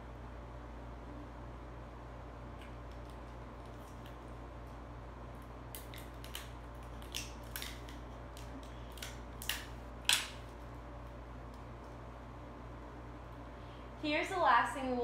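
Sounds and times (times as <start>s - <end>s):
adhesive tape ripping: 5.7s - 10.6s.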